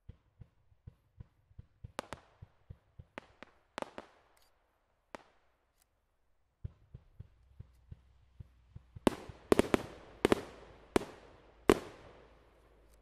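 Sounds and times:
fireworks thumps and cracks: 0.0 - 4.1, 6.6 - 12.8.

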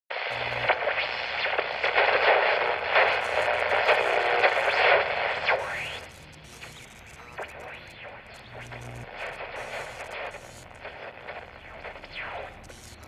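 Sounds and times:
radio static hiss with crackles: 0.1 - 13.0.

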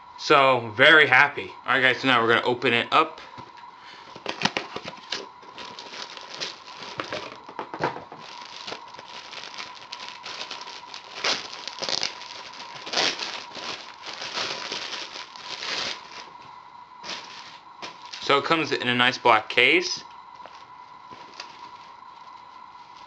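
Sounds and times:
plastic wrapping crinkling: 4.2 - 18.3, 20.4 - 23.0.

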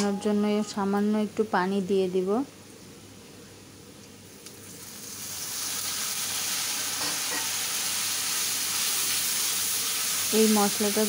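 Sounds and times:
spice paste sizzling in oil: 4.3 - 11.0.

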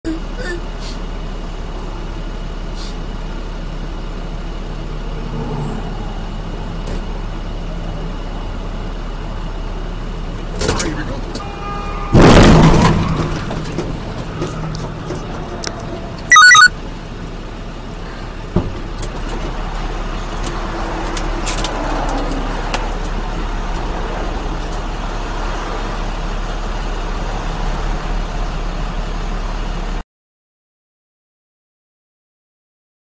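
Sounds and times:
highway traffic passing: 3.2 - 10.4, 13.5 - 28.9
loud pitched tone: 16.3 - 16.7.

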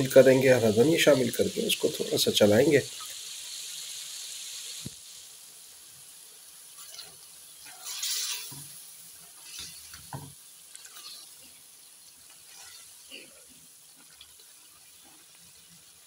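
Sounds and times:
curry sizzling in a pan: 0.0 - 16.0
metal spoon stirring and scraping: 6.8 - 11.6, 12.3 - 13.0.

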